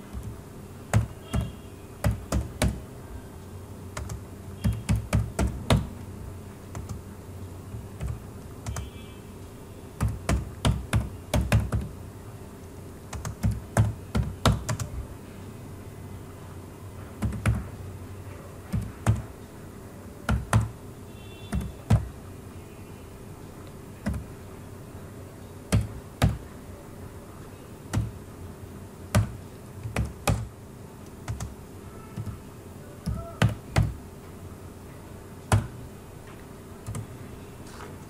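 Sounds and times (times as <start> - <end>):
faint steady hum: 0.0 - 38.0
keyboard key clicks: 27.9 - 28.2, 29.1 - 31.5.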